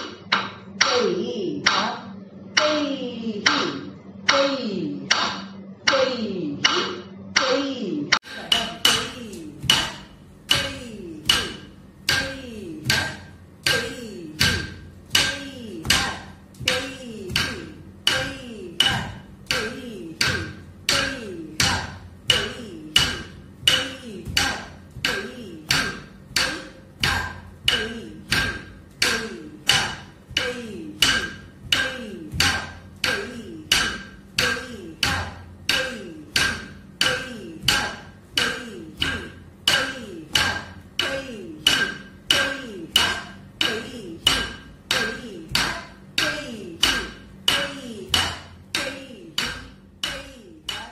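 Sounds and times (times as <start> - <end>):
stick striking wooden block: 0.0 - 2.0, 5.1 - 6.0, 6.6 - 7.6, 8.2 - 50.9.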